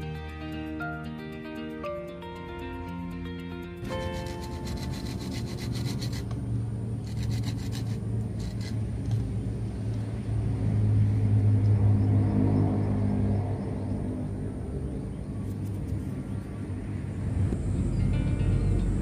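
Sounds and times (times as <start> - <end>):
hand saw cutting branch: 3.8 - 6.4, 7.0 - 9.0.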